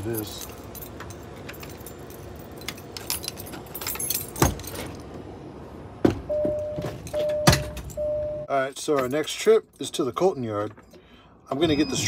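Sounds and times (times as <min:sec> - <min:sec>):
keys jangling: 0:00.0 - 0:05.2.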